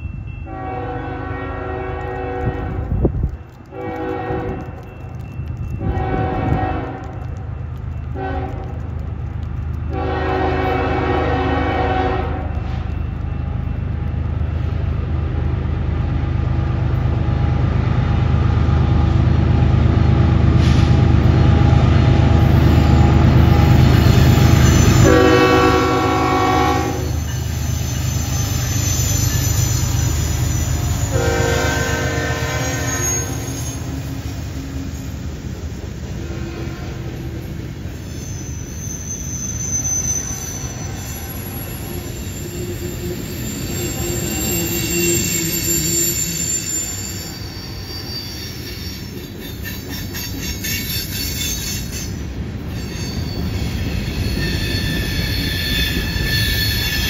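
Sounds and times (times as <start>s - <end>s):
diesel locomotives rumbling: 0.0s - 57.0s
train horn blasts: 0.4s - 3.0s, 3.7s - 4.7s, 5.8s - 7.2s, 8.2s - 8.8s, 9.9s - 12.6s, 24.7s - 27.3s, 31.0s - 33.8s
high wheel squeal: 23.4s - 35.4s, 37.4s - 57.0s.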